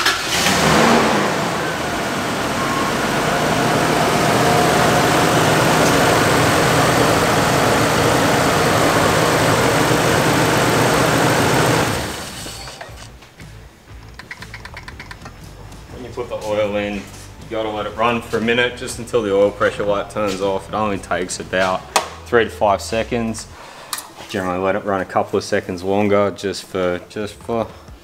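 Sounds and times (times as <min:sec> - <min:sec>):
car engine idling: 0:00.0 - 0:12.8.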